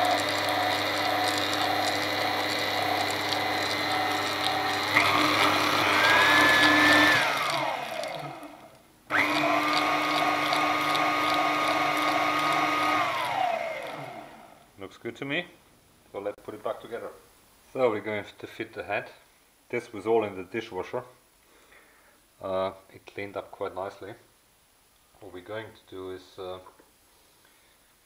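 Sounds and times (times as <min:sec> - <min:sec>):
stand mixer motor humming and whining: 0:00.0 - 0:14.6.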